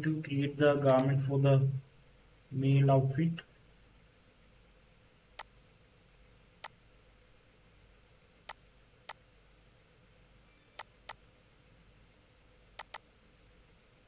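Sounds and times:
faint steady hiss: 0.0s - 14.0s
computer mouse clicking: 0.9s - 1.1s, 5.4s - 5.8s, 6.6s - 7.0s, 8.5s - 9.4s, 10.8s - 11.4s, 12.8s - 13.3s.

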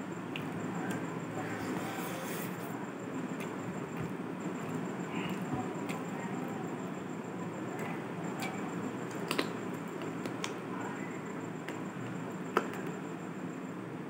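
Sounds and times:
steady background noise: 0.0s - 14.0s
fingers squishing rice: 7.6s - 10.7s.

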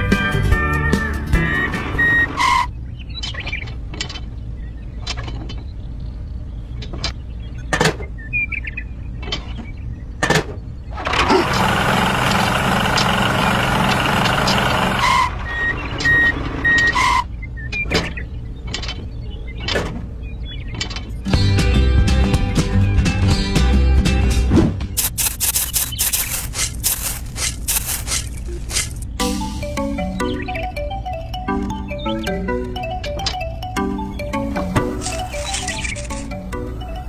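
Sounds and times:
toy tractor engine drone: 11.0s - 16.6s, 25.0s - 29.1s
rushing engine noise: 11.0s - 16.7s, 25.0s - 29.8s
toy parts clicking and knocking: 25.0s - 29.2s, 34.8s - 36.4s.

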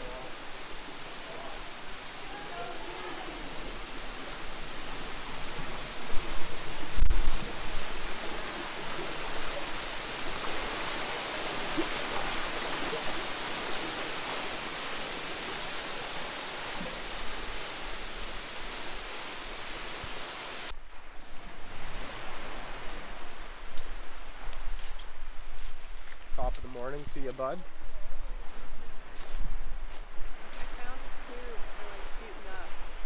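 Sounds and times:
waterfall pouring into pool: 0.0s - 20.8s.

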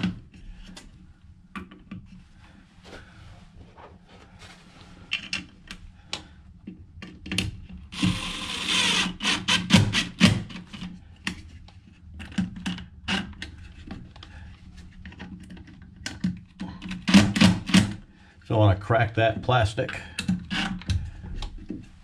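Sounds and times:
cordless drill driving screws: 8.0s - 10.3s.

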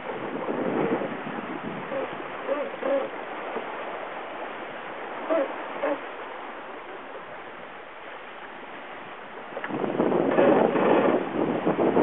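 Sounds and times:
water rushing around yacht: 0.0s - 12.0s
wind: 0.0s - 12.0s
short calls: 5.2s - 6.2s.

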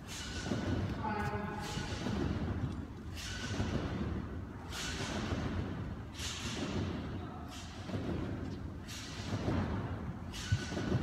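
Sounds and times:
steady low hum: 0.0s - 11.0s
trampoline bounce thuds: 0.0s - 11.0s.

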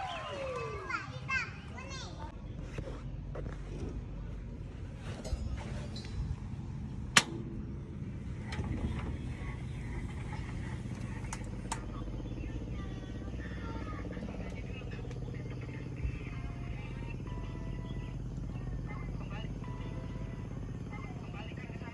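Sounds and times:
steady low hum: 0.0s - 21.9s
sharp click: 7.1s - 7.5s.

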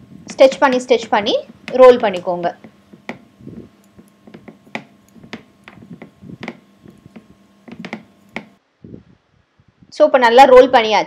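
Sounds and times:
rolling pin rolling dough: 0.0s - 8.6s
soft knocks: 1.1s - 3.4s, 4.0s - 8.6s.

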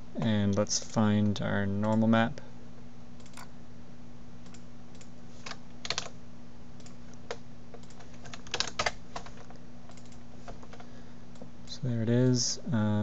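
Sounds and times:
low electrical hum: 0.0s - 13.0s
keyboard and mouse clicks: 3.2s - 3.5s, 6.8s - 10.8s.

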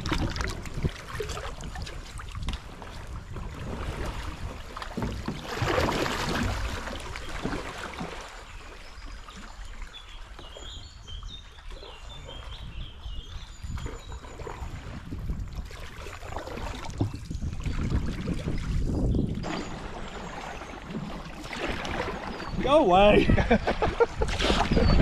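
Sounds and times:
water splashing against canoe: 0.0s - 25.0s.

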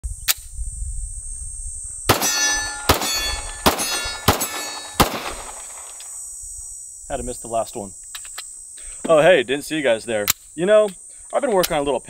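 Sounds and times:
high insect buzz: 0.0s - 12.0s
pistol shots: 2.1s - 6.0s
steel target ringing clang: 2.1s - 6.0s.

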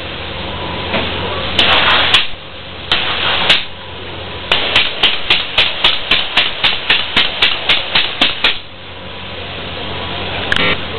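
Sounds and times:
low hum: 0.0s - 10.9s
steady hiss: 0.0s - 10.9s
rapid sharp knocks: 4.5s - 8.7s.

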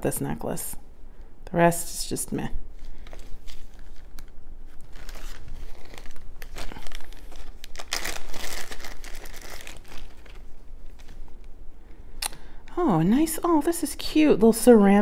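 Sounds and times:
plastic bag crinkling: 2.7s - 11.4s.

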